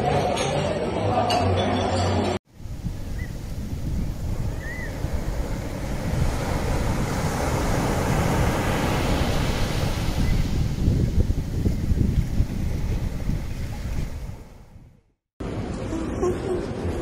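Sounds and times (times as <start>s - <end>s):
wind buffeting microphone: 2.5s - 15.0s
sea water rushing along ship: 2.6s - 14.4s.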